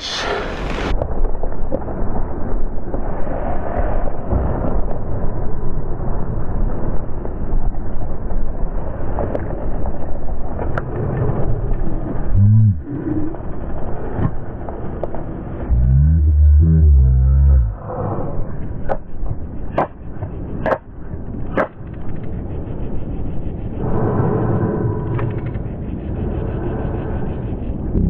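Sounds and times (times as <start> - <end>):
wind buffeting microphone: 16.9 - 28.0.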